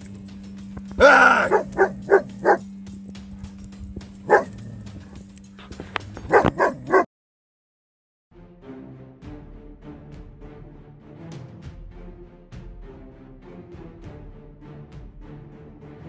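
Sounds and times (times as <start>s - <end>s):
dog barking sharply: 1.0s - 2.6s, 4.3s - 4.7s, 6.3s - 7.1s
dog crying out: 1.0s - 2.6s.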